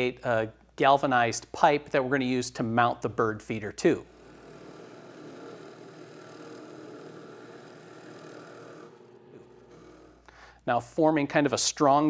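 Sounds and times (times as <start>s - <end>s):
drill press boring wood: 4.0s - 10.5s.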